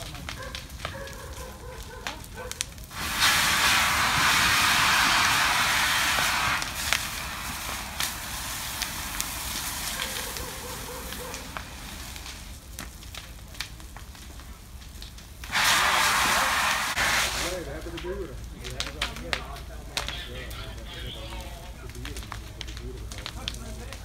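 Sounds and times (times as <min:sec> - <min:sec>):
fire crackling and popping: 0:00.0 - 0:24.0
loud hiss: 0:02.9 - 0:12.5, 0:15.5 - 0:17.8.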